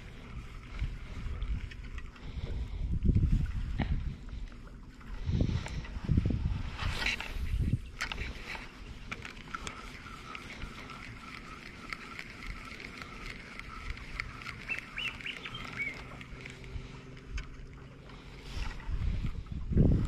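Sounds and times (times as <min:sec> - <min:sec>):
fishing reel whirring: 0:00.0 - 0:20.0
light reel clicks: 0:06.8 - 0:19.5.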